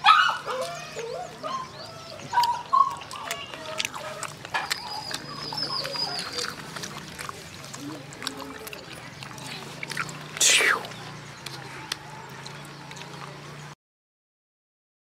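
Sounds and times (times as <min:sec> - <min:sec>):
animal chirps and whines: 0:00.0 - 0:11.1.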